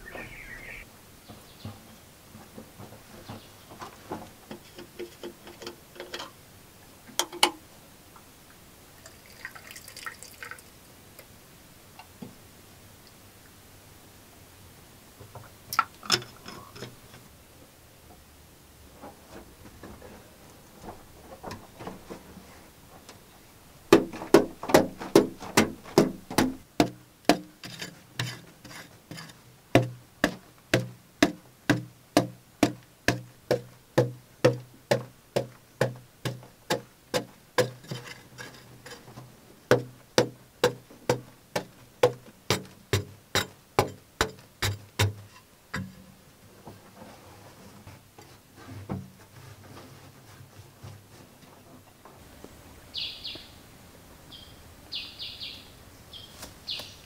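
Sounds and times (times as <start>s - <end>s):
digging tool striking packed earth: 23.9s - 39.1s, 39.7s - 46.1s.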